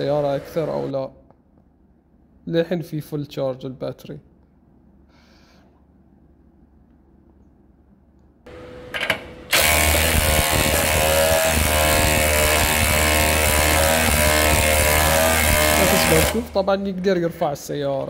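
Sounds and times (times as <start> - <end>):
impact driver running under load: 9.5 - 18.0.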